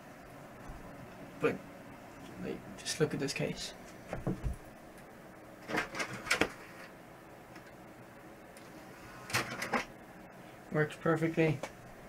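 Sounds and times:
computer fan hum: 0.0 - 12.0
rustling and knocking: 4.0 - 4.7.

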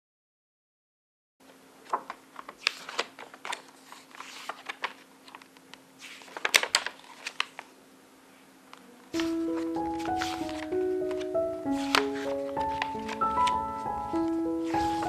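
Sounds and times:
paper pages rustling: 1.4 - 7.7, 9.2 - 15.0
faint steady hum: 1.4 - 14.6
crisp clicks: 10.0 - 14.4.

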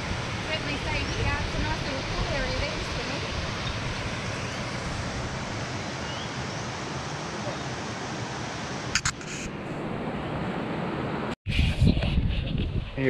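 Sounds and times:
river rapids rushing: 0.0 - 9.1
sharp clicks: 9.0 - 9.5.

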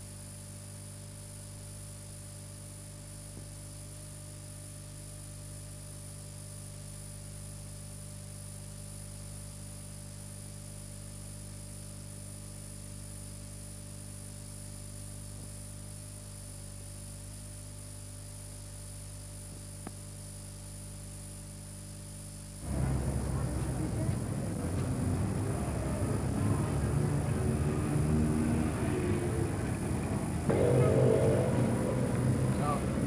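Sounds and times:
electrical mains hum and buzz: 0.0 - 33.0
constant hiss: 14.4 - 27.8.

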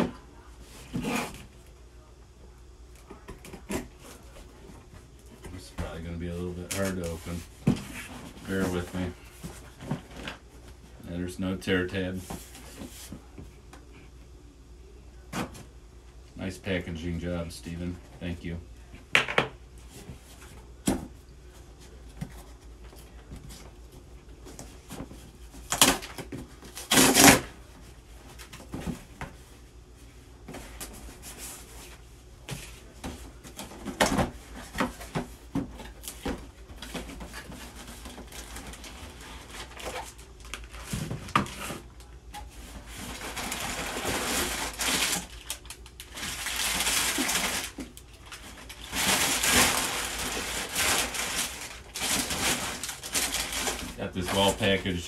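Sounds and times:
packing foam and plastic rustling: 5.6 - 10.4, 24.5 - 27.6, 30.5 - 55.0
cardboard box being torn open: 26.8 - 27.5.

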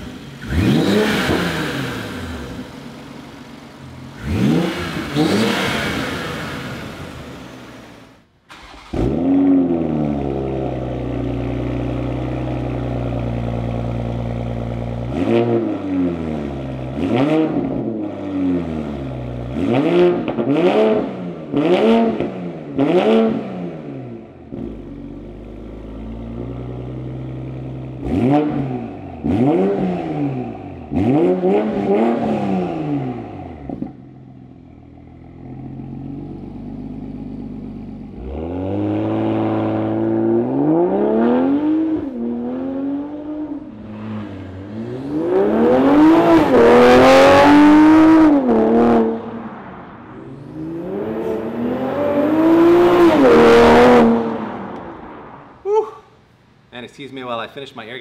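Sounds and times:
car accelerating away: 0.0 - 2.8, 4.1 - 55.7.

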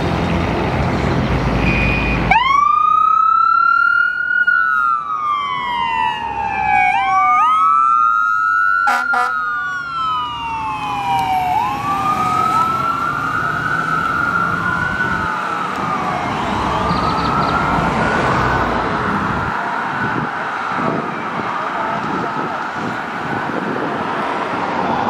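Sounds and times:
diesel engine rumbling: 0.0 - 8.2, 9.0 - 25.0
fire engine wail siren: 1.6 - 25.0.

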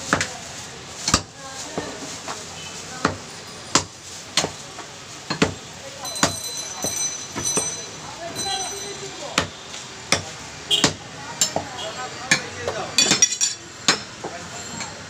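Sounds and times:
cleaver chopping on wooden block: 9.4 - 11.7.

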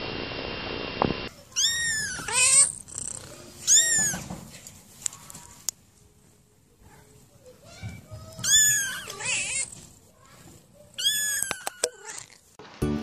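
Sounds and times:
kitten meowing: 1.5 - 4.2, 8.4 - 9.7, 11.0 - 12.4
kitten purring: 1.6 - 4.0.

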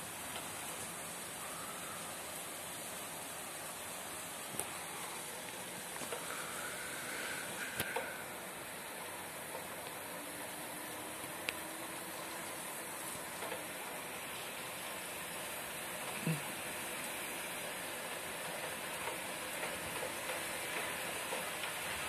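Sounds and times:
heavy rain hissing: 0.0 - 22.0
raindrops ticking close by: 0.0 - 22.0.

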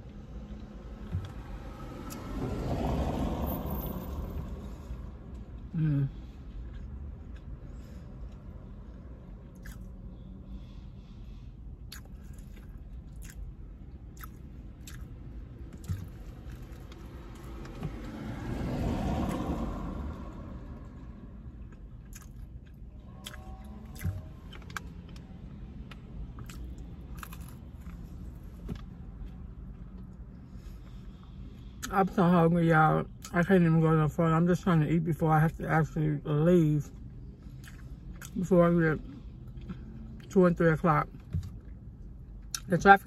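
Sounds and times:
vehicle passing: 0.0 - 32.2
chewing crunchy fish: 9.5 - 9.9, 11.8 - 17.5, 21.6 - 25.2, 26.2 - 28.1.

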